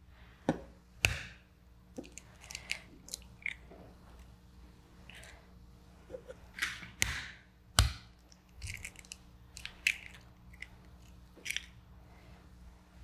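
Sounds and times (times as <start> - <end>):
eggshells cracking: 1.9 - 4.2, 7.8 - 11.8.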